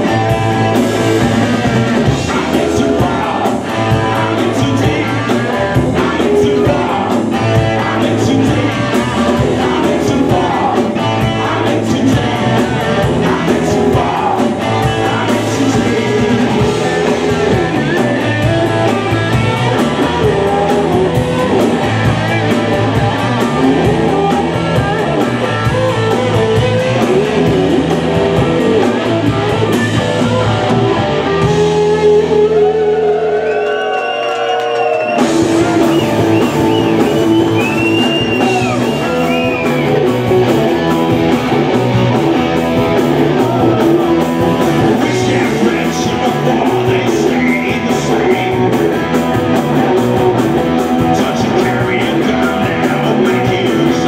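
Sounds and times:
bass guitar: 0.0 - 54.0
drum kit: 0.0 - 54.0
electric guitars: 0.0 - 54.0.

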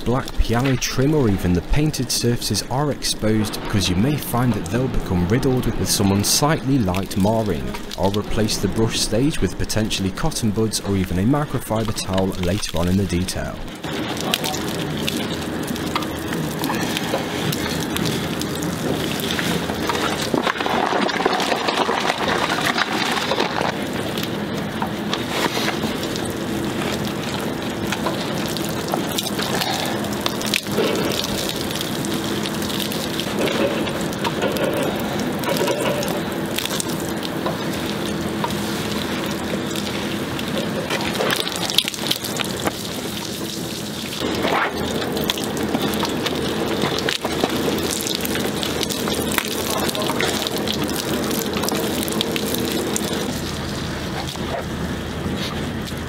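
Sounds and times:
small clicks of water and suds: 13.8 - 54.4.

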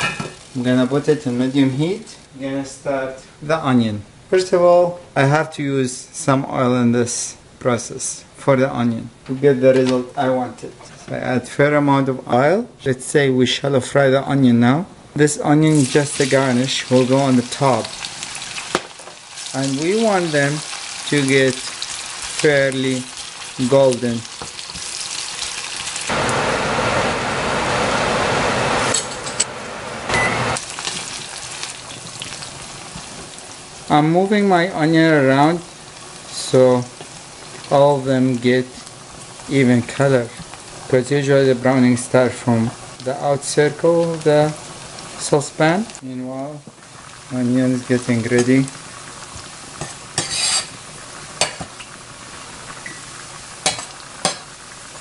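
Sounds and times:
onions sizzling in hot oil: 0.0 - 2.0, 15.7 - 55.0
metal spoon scraping pan: 49.8 - 50.8.

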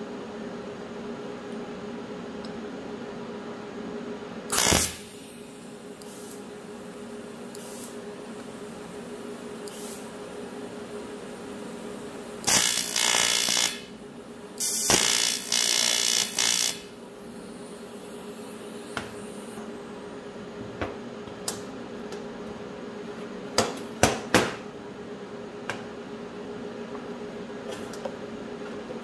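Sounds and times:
welding arc hissing buzz: 4.5 - 19.7.

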